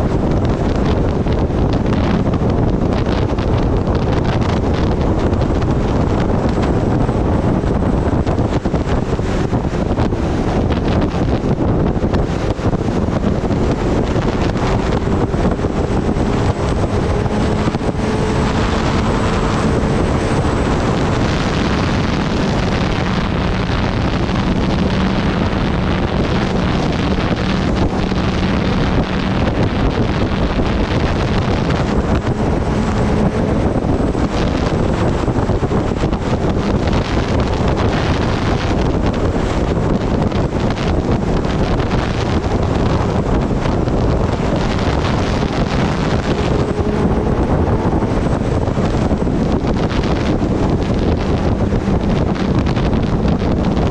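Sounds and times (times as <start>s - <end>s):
motorcycle engine drone: 0.0s - 53.9s
wind rushing over microphone: 0.0s - 53.9s.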